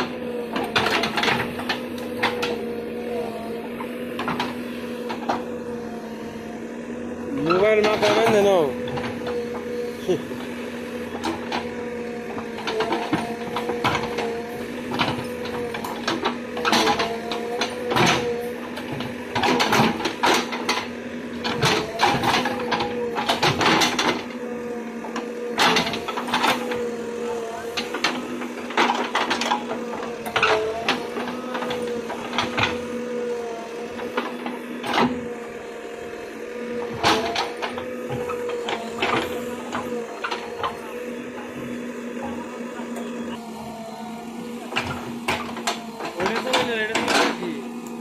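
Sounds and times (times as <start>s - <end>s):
bucket and arm linkage clanking: 0.0s - 5.9s, 7.4s - 10.4s, 11.0s - 48.0s
diesel engine running: 0.0s - 48.0s.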